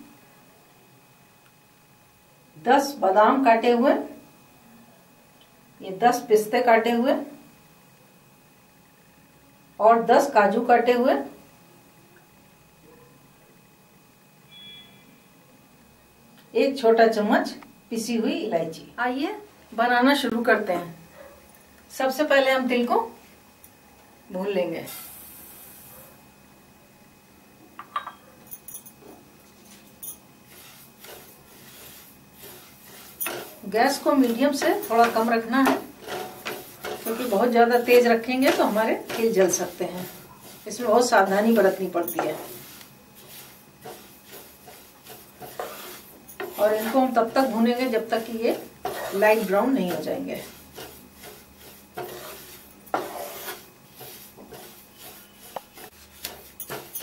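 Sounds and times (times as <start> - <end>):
spatula scraping through seeds: 30.4 - 57.0.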